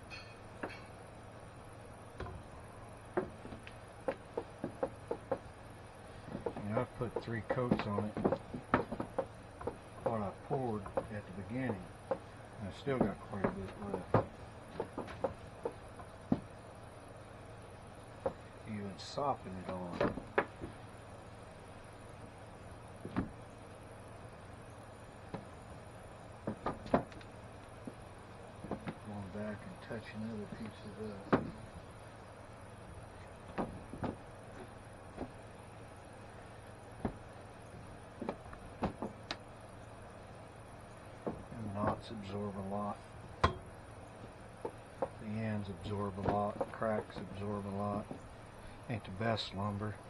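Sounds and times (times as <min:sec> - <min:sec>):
steady low background noise: 0:00.0 - 0:50.0
applicator tapping on boards: 0:03.1 - 0:05.5, 0:06.3 - 0:12.3, 0:13.0 - 0:16.5, 0:26.4 - 0:27.2, 0:28.6 - 0:29.0, 0:33.5 - 0:35.4, 0:37.0 - 0:37.2, 0:41.2 - 0:42.1, 0:46.2 - 0:47.4.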